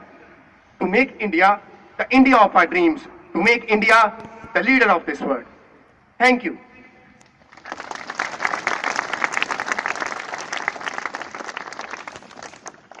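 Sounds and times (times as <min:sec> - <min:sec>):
large audience applauding: 0:07.5 - 0:13.0.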